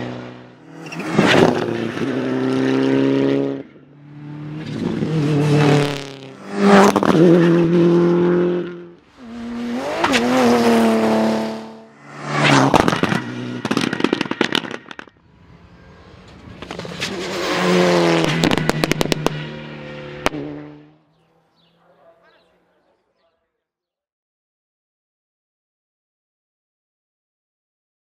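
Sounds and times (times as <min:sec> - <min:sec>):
rally car engines revving: 0:00.0 - 0:22.5
exhaust pops and crackles: 0:12.6 - 0:15.2, 0:18.2 - 0:19.5.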